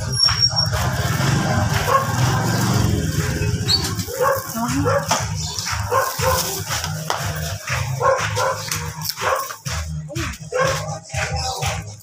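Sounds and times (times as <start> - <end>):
motorcycle engine idling: 0.5 - 8.5.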